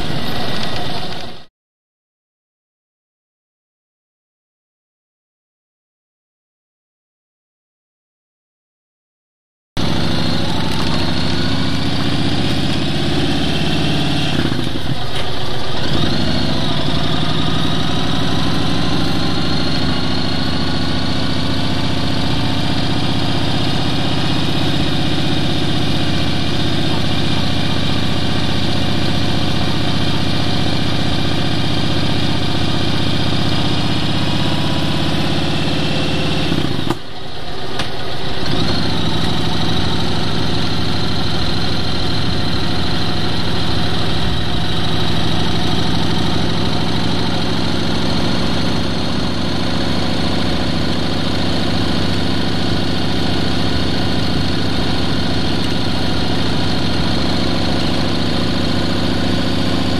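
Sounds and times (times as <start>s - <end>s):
vehicle engine running: 0.0s - 1.5s, 9.8s - 59.9s.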